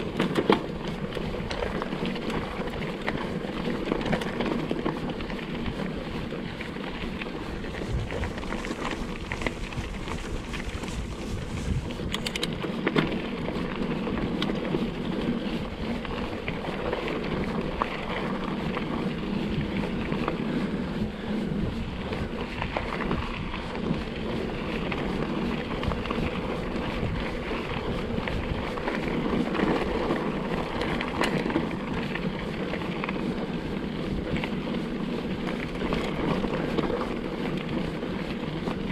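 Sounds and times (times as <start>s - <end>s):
bike tyre rumble: 0.0s - 38.9s
wind on microphone: 5.2s - 12.8s, 13.4s - 38.9s
bike knocks and rattles: 7.1s - 18.9s.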